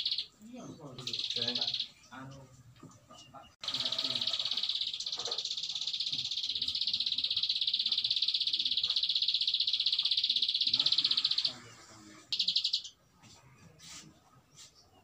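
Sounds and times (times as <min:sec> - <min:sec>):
bird singing buzzing trill: 0:00.0 - 0:00.4, 0:01.0 - 0:02.0, 0:03.6 - 0:11.5, 0:12.3 - 0:13.0.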